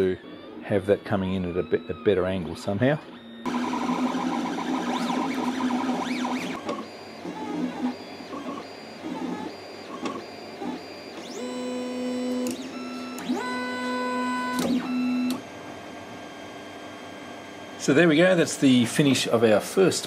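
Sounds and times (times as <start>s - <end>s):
stepper motors whining: 0.0s - 15.4s.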